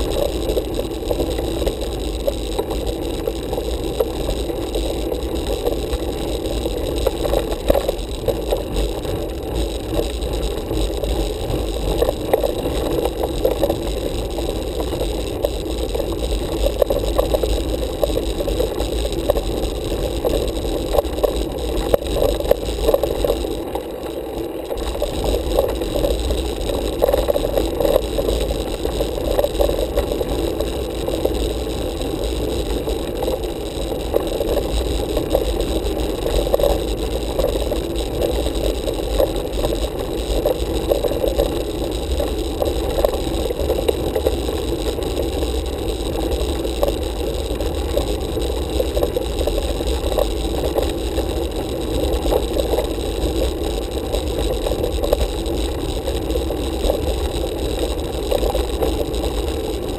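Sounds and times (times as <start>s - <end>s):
bike rolling over rough asphalt: 0.0s - 59.9s.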